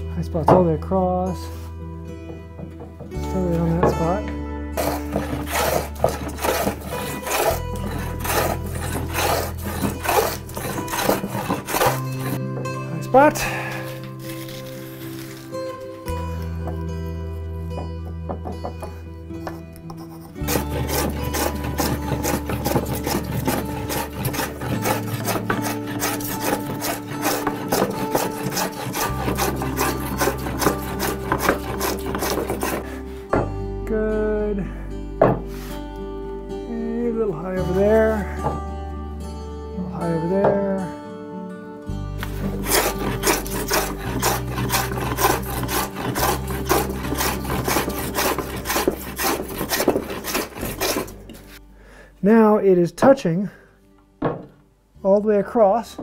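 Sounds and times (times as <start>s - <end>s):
hand plane rasping on wood: 4.8s - 12.4s, 13.1s - 15.4s, 18.8s - 33.2s, 42.2s - 51.6s.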